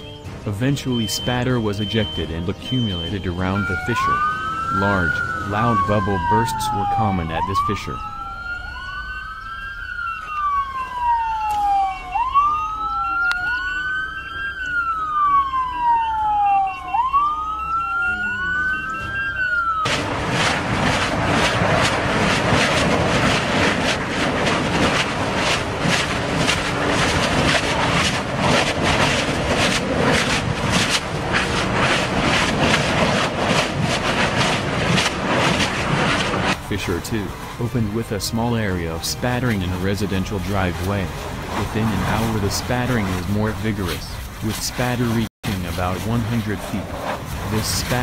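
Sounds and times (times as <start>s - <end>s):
fast steady beeping: 0.0s - 7.3s
emergency vehicle siren wailing: 0.0s - 44.2s
lava fissure roaring and crackling: 19.6s - 38.0s, 39.6s - 48.0s.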